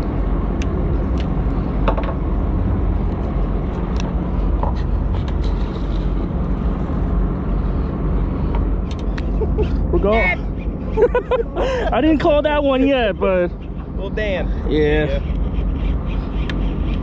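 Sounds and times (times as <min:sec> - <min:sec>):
boat engine idling: 0:04.2 - 0:17.0.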